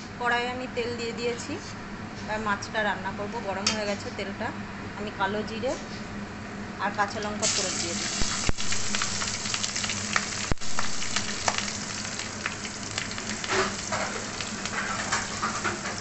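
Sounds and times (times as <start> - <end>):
steady low hum: 0.0 - 15.5
seeds sizzling in hot oil: 7.4 - 16.0.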